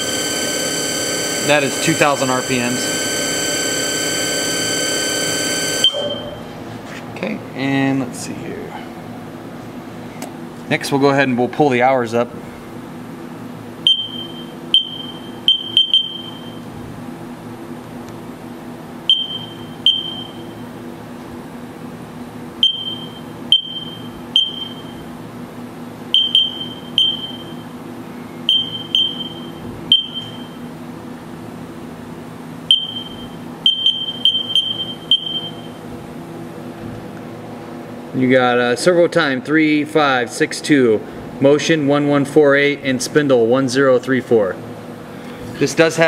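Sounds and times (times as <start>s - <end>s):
low machine hum: 0.0s - 46.0s
keypad beeps: 4.6s - 6.4s, 13.8s - 16.6s, 19.1s - 20.4s, 22.6s - 24.9s, 26.2s - 27.5s, 28.5s - 30.5s, 32.7s - 35.8s.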